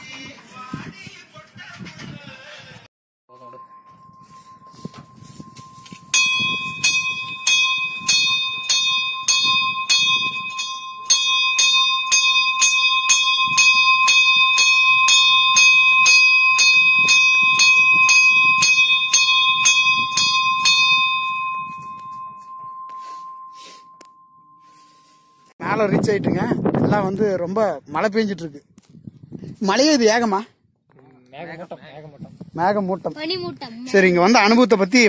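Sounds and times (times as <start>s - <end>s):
temple bell ringing: 3.3s - 25.5s.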